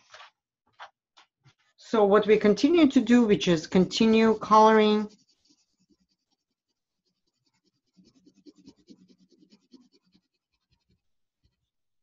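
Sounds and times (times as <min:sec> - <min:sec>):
pencil scratching on paper: 0:02.4 - 0:11.8.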